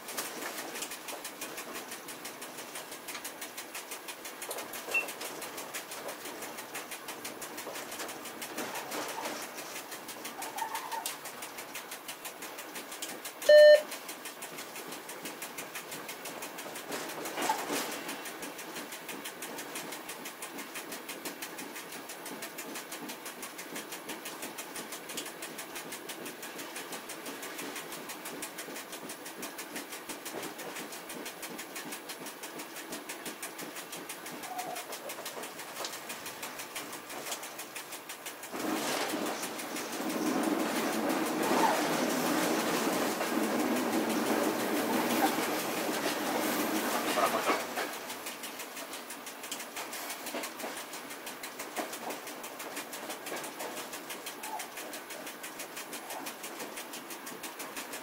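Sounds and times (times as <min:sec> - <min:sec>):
steady fast ticking: 0:00.0 - 0:58.0
train running noise: 0:00.0 - 0:58.0
electronic beep: 0:13.5 - 0:13.8.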